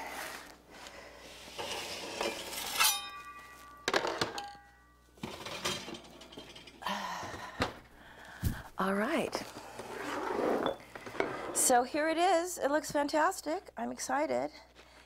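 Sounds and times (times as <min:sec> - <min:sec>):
metal kitchenware clanking: 0:01.6 - 0:06.9.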